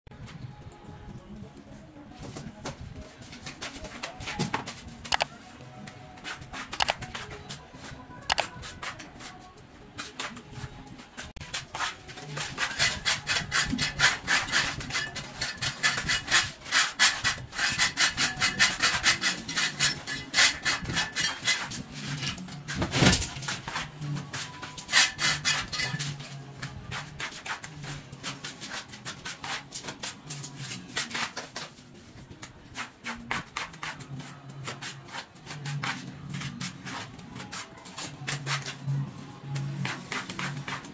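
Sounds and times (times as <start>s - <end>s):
background music: 0.1s - 40.9s
plastering tool scraping render: 11.4s - 40.9s.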